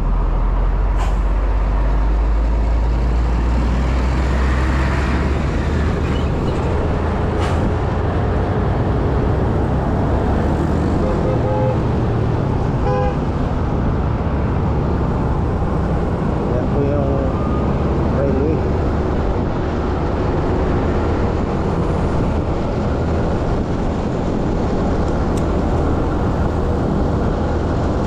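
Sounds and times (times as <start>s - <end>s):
surrounding traffic: 0.0s - 28.0s
wind: 0.0s - 28.0s
vehicle horn tooting: 12.8s - 13.2s.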